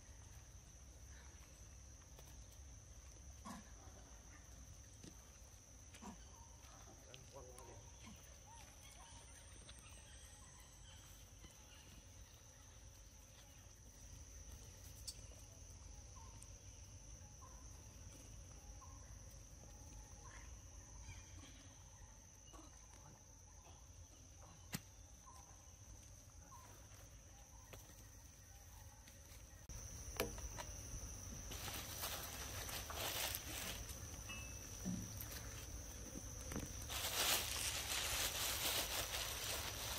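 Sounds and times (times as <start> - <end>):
high-pitched insect drone: 29.7 - 39.9
rustling: 31.4 - 39.9.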